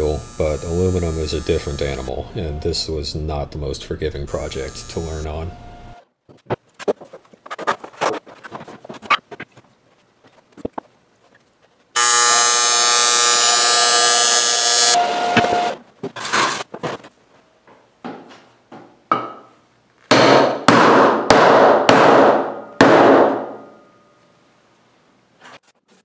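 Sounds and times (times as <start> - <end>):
welding arc buzzing: 0.0 - 2.1, 4.3 - 6.0, 12.0 - 15.8
hard knocks on metal sheet: 20.1 - 23.6.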